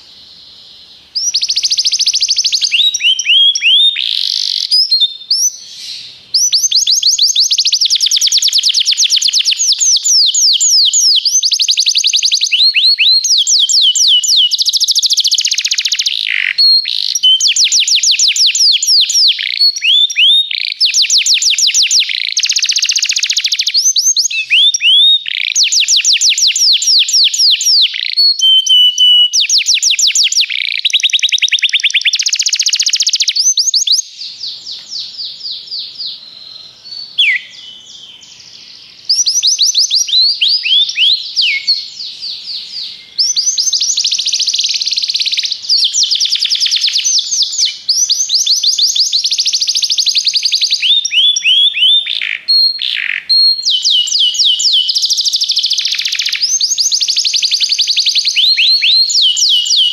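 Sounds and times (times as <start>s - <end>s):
canary singing trills: 0.0s - 59.9s.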